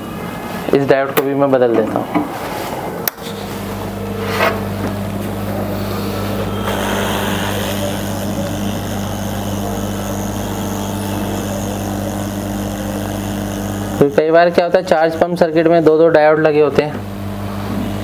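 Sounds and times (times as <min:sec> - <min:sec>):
hot-air station hum: 0:00.0 - 0:18.0.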